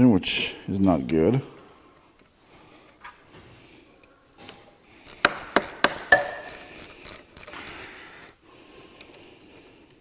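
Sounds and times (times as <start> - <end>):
sharp clicks and knocks of tools: 4.4 - 7.8.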